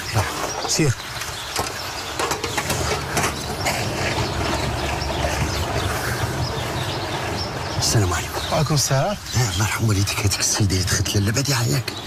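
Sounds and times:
moped engine puttering: 1.4 - 8.7.

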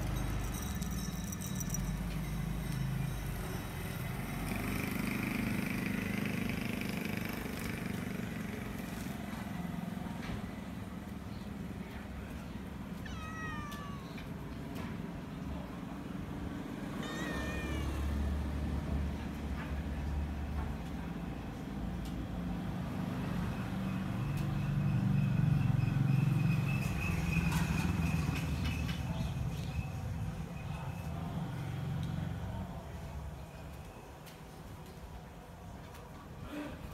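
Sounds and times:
cat meowing: 13.0 - 14.3, 16.9 - 18.4.

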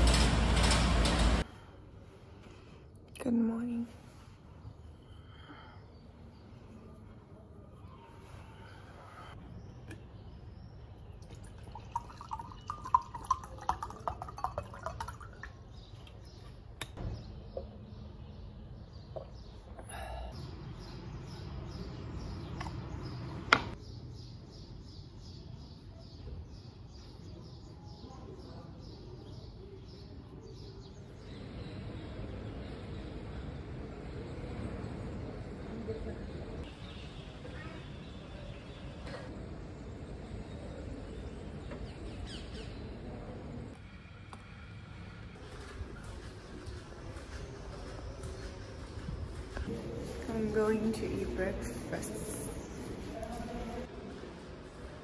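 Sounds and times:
water gurgling into a glass: 11.2 - 15.7.

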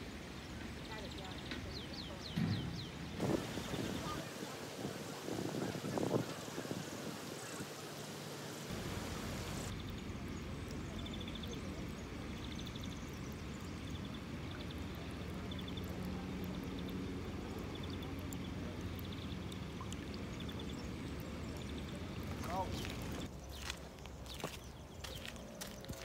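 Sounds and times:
stream water rushing and gurgling: 2.7 - 9.8, 13.6 - 24.6
high chirping ticks: 9.7 - 25.9.

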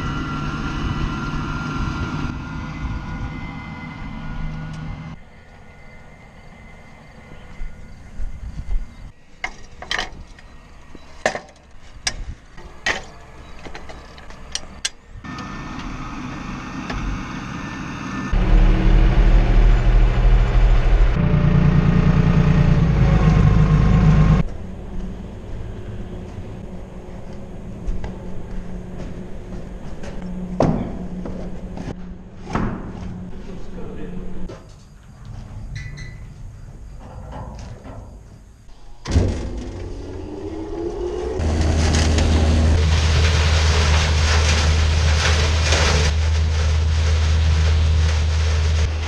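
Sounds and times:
tractor engine running: 12.7 - 32.2, 38.7 - 49.0.

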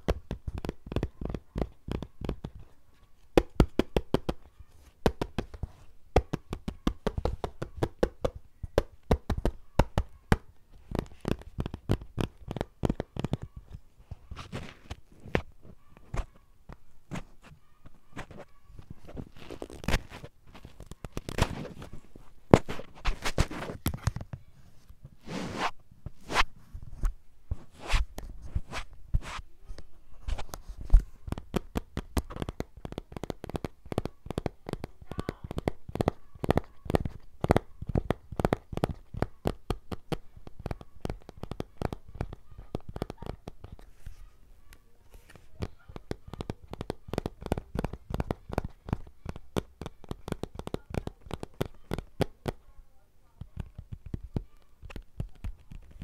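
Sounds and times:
tapping on hard object: 0.0 - 2.6, 3.3 - 13.7, 30.9 - 43.8, 45.5 - 52.6
scratchy sounds: 9.3 - 52.7.

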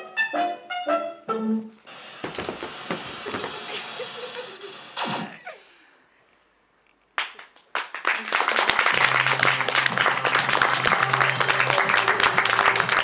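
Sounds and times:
audience applause: 7.2 - 13.0.

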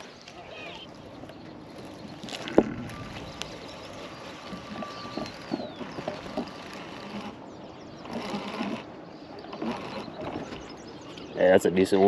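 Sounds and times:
fishing reel whirring: 2.9 - 10.6.

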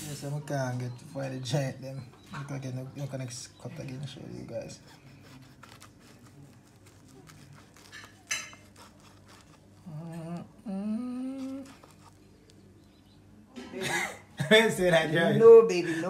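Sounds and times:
scratchy scrape: 4.7 - 10.0, 11.4 - 12.6
person humming: 9.8 - 12.0.

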